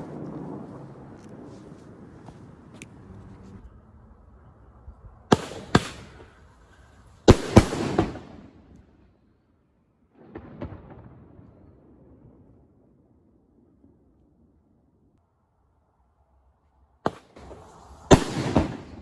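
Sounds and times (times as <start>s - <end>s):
fireworks exploding with bangs: 5.3s - 6.3s, 7.3s - 8.6s, 17.1s - 19.0s.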